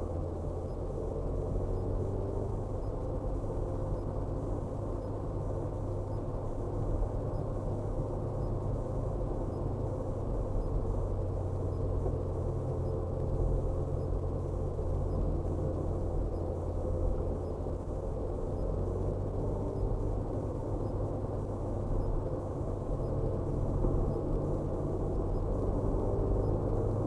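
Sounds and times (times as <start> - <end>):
car engine and tyre drone: 0.0 - 27.0.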